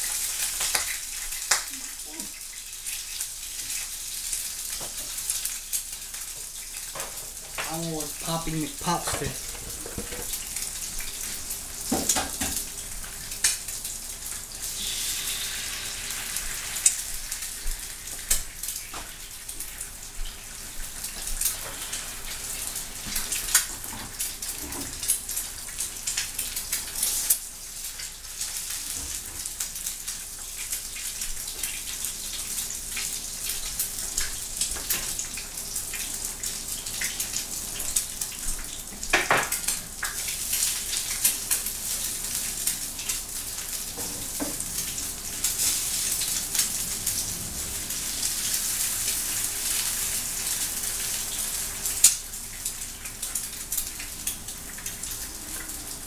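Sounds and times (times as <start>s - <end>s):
food sizzling in a frying pan: 0.0s - 56.0s.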